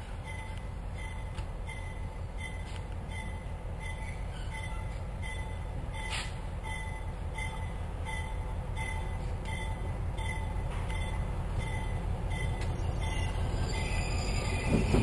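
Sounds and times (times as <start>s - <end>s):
diesel locomotive engine rumbling: 0.0s - 15.0s
locomotive bell ringing: 0.0s - 15.0s.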